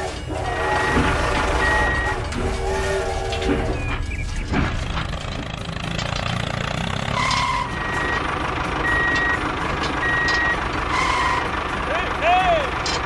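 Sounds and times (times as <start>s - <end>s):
low vehicle engine rumble: 0.0s - 13.0s
reversing alarm beeps: 0.6s - 2.2s, 7.2s - 8.2s, 8.8s - 9.4s, 10.0s - 11.4s.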